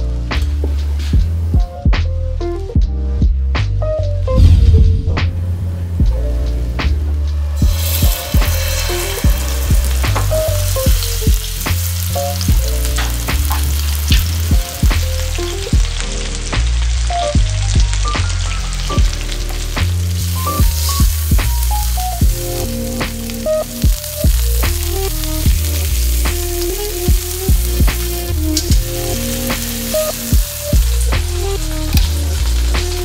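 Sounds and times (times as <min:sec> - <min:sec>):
background music: 0:00.0 - 0:33.0
steaks sizzling in frying pan: 0:07.6 - 0:33.0.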